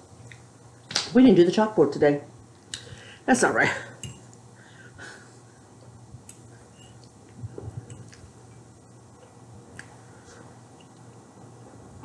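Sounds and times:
quiet chewing: 0:05.8 - 0:11.2.

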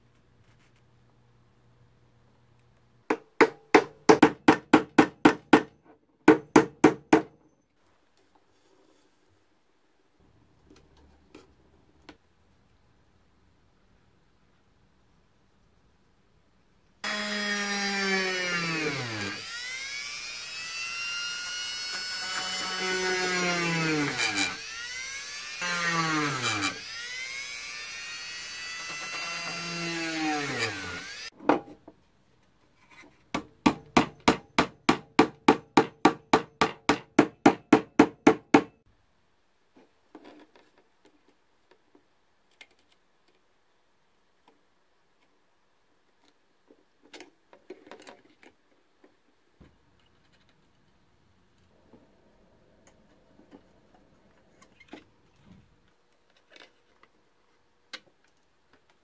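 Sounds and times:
electric drill drilling into wood: 0:17.0 - 0:31.3.

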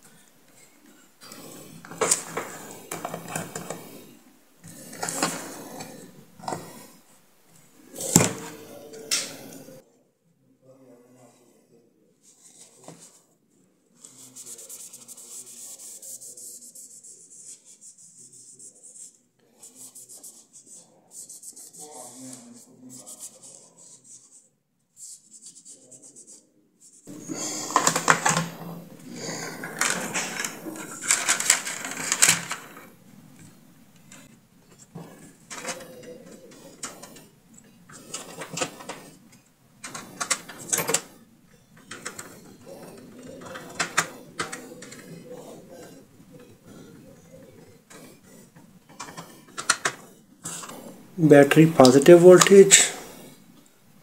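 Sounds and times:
plastic parts rubbing and clicking: 0:00.5 - 0:04.0, 0:04.6 - 0:07.0, 0:27.0 - 0:53.6.

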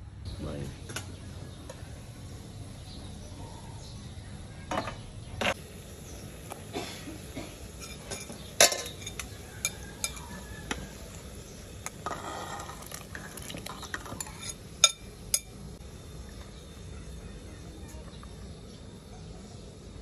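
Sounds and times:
metal spoon clinking on pot: 0:07.8 - 0:10.4, 0:12.0 - 0:15.6
meat scraped into pot: 0:12.0 - 0:14.6.

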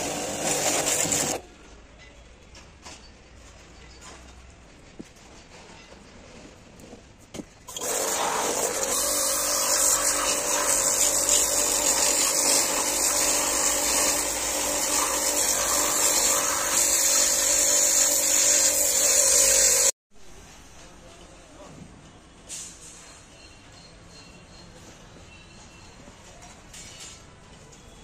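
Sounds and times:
pressure washer water jet hissing: 0:00.0 - 0:01.4, 0:07.7 - 0:20.0.

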